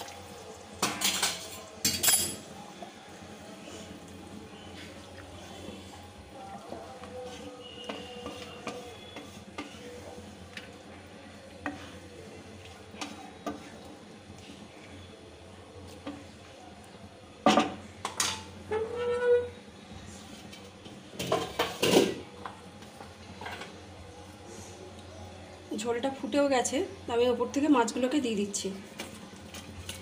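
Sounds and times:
spatula scraping and knocking pan: 0:06.8 - 0:10.7.

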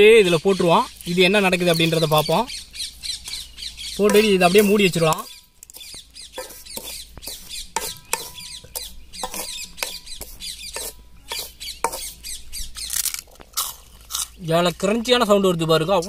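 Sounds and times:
sharp crackles: 0:00.8 - 0:07.6, 0:12.7 - 0:16.0
spatula scraping in sand: 0:04.1 - 0:12.2.

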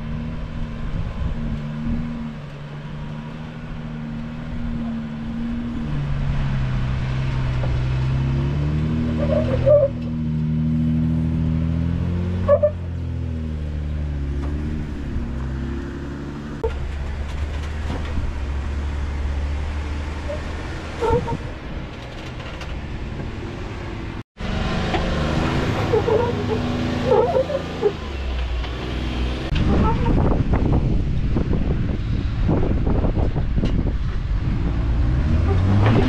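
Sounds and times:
engine revving: 0:00.0 - 0:21.6, 0:22.2 - 0:36.0
crackling and scraping: 0:16.6 - 0:19.4, 0:20.2 - 0:23.4, 0:24.8 - 0:30.2.

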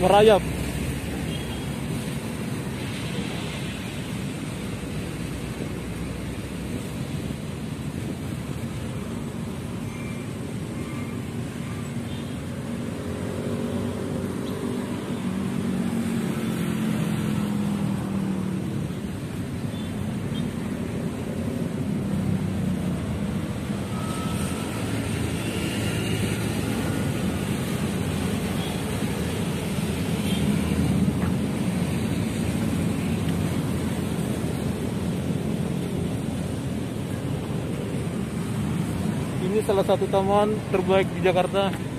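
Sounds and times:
road traffic engines humming: 0:00.0 - 0:41.9.

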